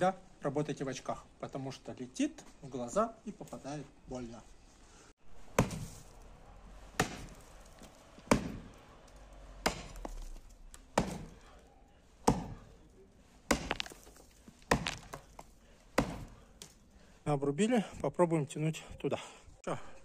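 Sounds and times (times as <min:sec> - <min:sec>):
axe chopping roots: 0:05.4 - 0:06.2, 0:06.9 - 0:11.6, 0:12.2 - 0:12.8, 0:13.4 - 0:16.8.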